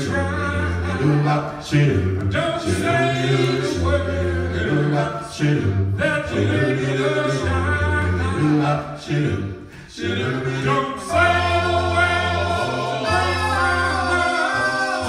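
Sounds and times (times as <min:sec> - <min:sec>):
deep bass voice singing: 0:00.0 - 0:09.6
a cappella group singing in harmony: 0:00.0 - 0:15.0.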